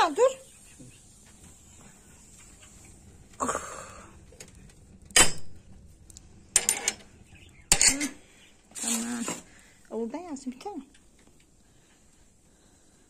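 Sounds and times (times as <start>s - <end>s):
scraping rustle: 8.7s - 9.6s.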